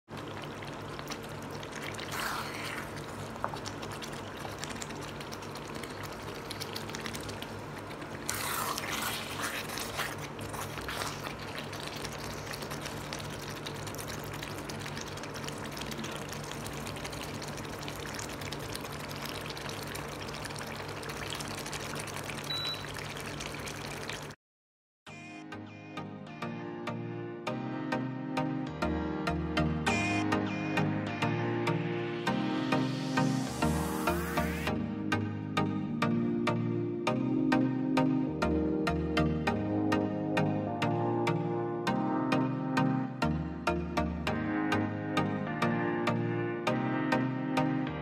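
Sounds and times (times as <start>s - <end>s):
thick gravy bubbling in a pan: 0.1s - 24.4s
spatula stirring: 0.6s - 18.2s.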